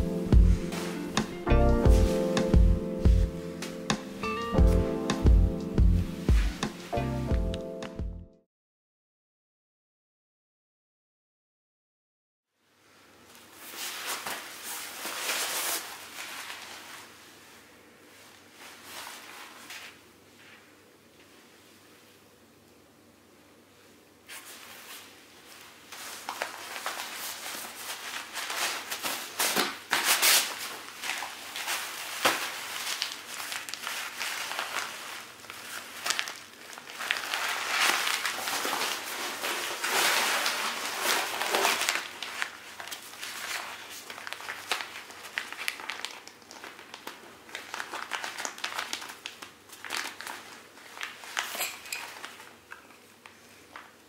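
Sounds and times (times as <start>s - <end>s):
nylon sleeping pad crinkling: 0.0s - 2.4s, 13.5s - 20.7s, 24.3s - 54.0s.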